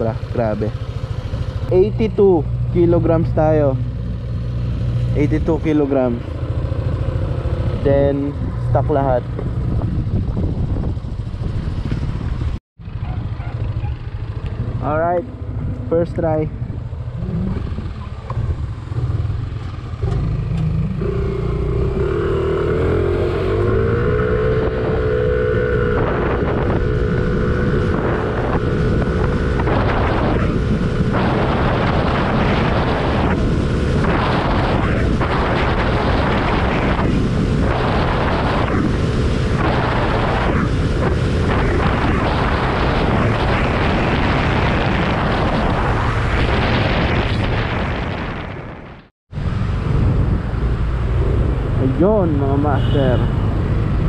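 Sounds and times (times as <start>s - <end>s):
wind noise on microphone: 7.3s - 13.8s, 14.5s - 19.4s, 20.3s - 54.0s
scooter engine accelerating: 17.0s - 44.7s.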